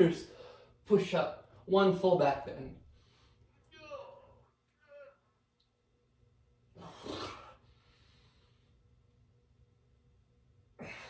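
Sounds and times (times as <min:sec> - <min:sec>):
soft breathing: 0:00.2 - 0:00.8, 0:02.8 - 0:03.7, 0:06.8 - 0:09.0.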